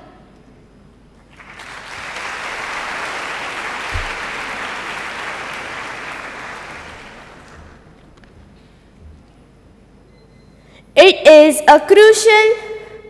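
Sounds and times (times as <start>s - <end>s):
audience applauding: 1.3s - 8.2s.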